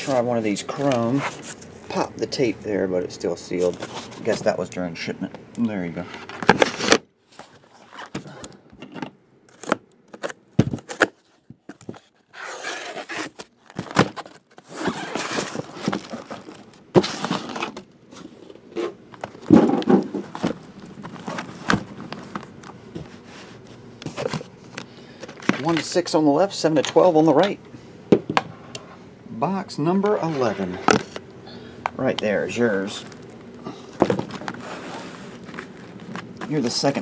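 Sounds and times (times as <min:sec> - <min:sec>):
cardboard and plastic wrap rustling: 0:03.4 - 0:04.7, 0:09.5 - 0:26.2, 0:32.3 - 0:37.0
boxes knocking and thudding: 0:18.8 - 0:22.4, 0:34.0 - 0:34.7.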